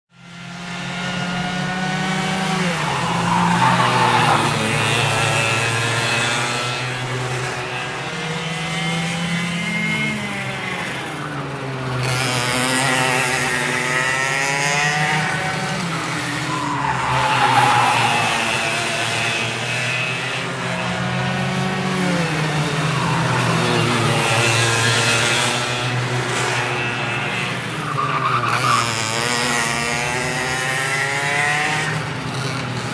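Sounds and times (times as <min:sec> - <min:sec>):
go-kart engines revving: 0:00.2 - 0:32.9.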